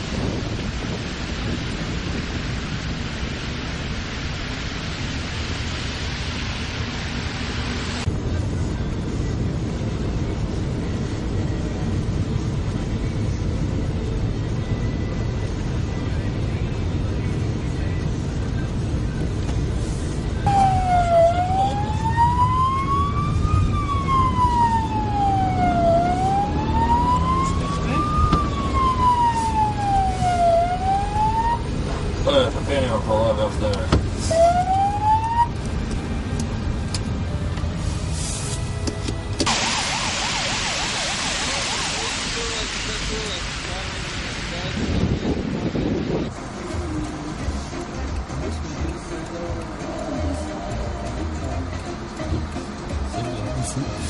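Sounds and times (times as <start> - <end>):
car road and wind noise: 0.0 - 54.0
police siren wailing: 20.4 - 31.9, 34.2 - 35.7, 39.4 - 46.2.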